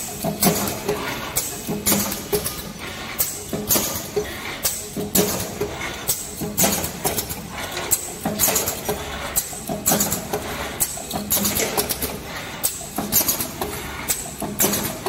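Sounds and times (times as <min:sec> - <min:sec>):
machine clacks: 0:00.0 - 0:15.0.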